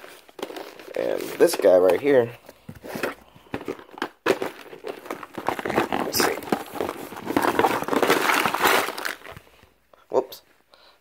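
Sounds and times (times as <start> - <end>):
plastic trays clattering: 0.3 - 9.4.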